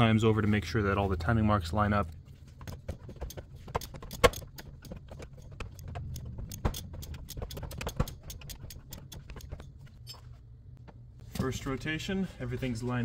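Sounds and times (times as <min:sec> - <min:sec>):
wrench clicking on metal: 0:02.7 - 0:10.2.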